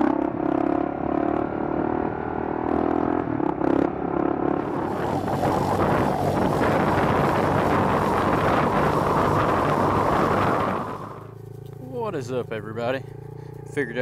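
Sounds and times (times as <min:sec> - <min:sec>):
faint motorcycle engine: 0:00.0 - 0:14.0
wind buffeting microphone: 0:04.6 - 0:12.3.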